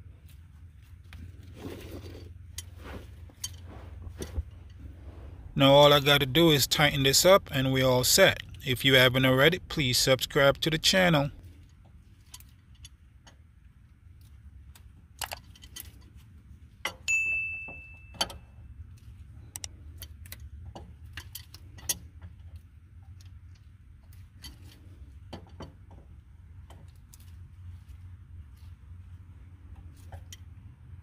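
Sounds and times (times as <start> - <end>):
ringing metal clang: 17.0 - 18.6.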